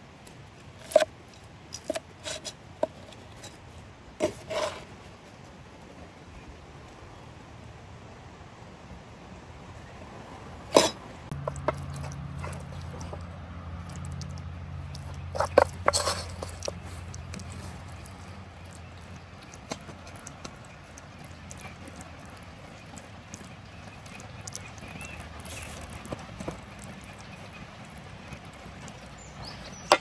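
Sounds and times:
wooden spoon scraping bread: 0.8 - 1.1, 1.7 - 3.6, 4.2 - 5.0, 10.8 - 13.3, 13.9 - 30.0.

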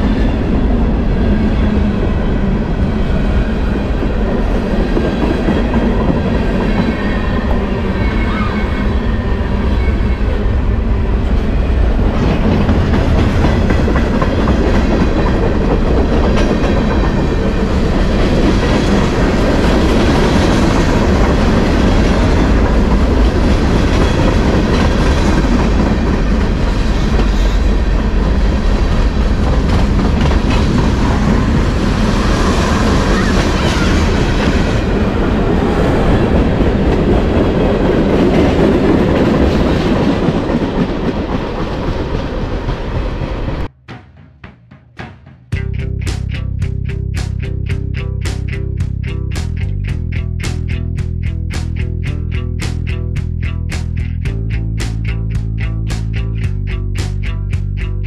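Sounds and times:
freight train wheels rumbling: 0.0 - 43.8, 45.5 - 58.0
clickety-clack over rail joints: 12.1 - 35.0, 36.2 - 43.7.

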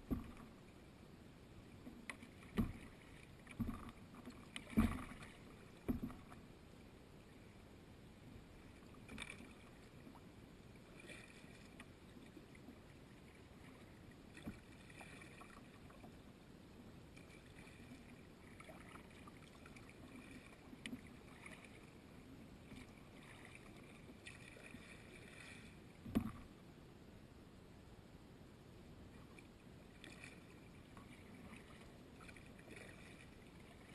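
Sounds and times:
paddle knocking against hull: 0.0 - 0.6, 1.9 - 6.4, 26.0 - 26.5
paddle dipping and dripping water: 0.0 - 0.9, 1.6 - 6.6, 8.6 - 16.2, 17.1 - 26.6, 29.1 - 33.9.

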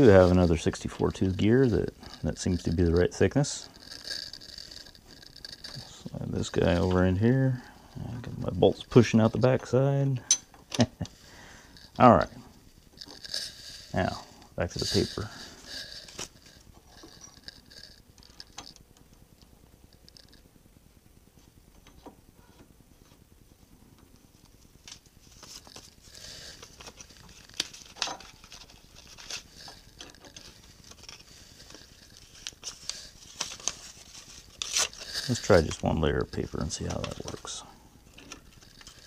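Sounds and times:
paper rustling: 25.2 - 37.7.

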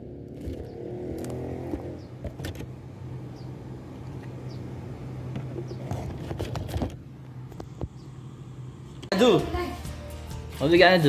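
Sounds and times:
low mechanical hum: 1.8 - 9.1.

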